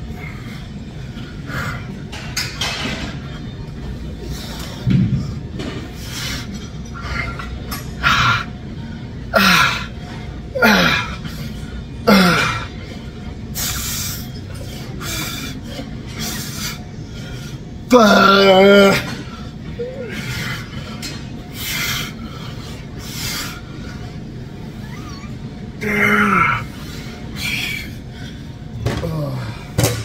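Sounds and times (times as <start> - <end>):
man grunting with effort: 12.1 - 12.7, 17.9 - 19.2, 25.8 - 26.7.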